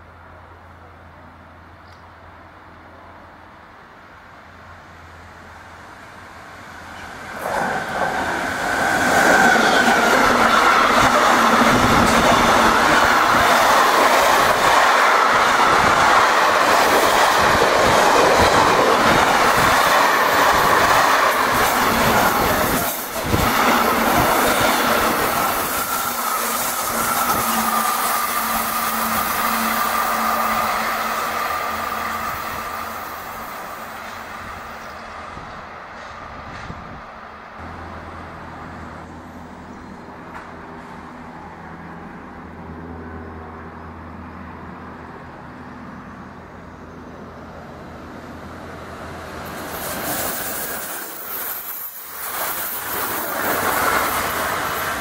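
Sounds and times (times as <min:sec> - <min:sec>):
freight train passing: 0:00.0 - 0:55.0.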